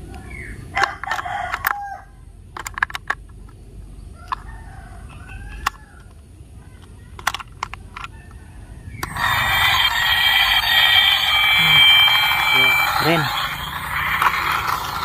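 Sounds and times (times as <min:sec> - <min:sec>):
plastic clicks and snaps: 0:02.5 - 0:03.6, 0:05.6 - 0:08.2.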